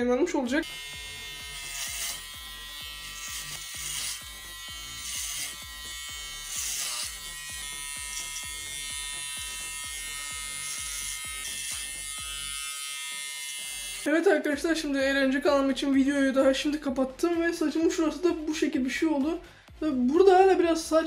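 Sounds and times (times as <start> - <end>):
electric hair clipper buzzing: 0.6 - 14.1.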